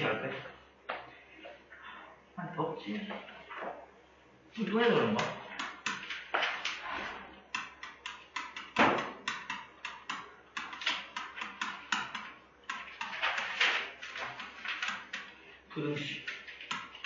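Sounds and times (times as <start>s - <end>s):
stylus tapping on pen tablet: 5.2s - 6.5s, 7.5s - 15.4s, 16.3s - 17.0s
loud knock: 8.8s - 9.3s.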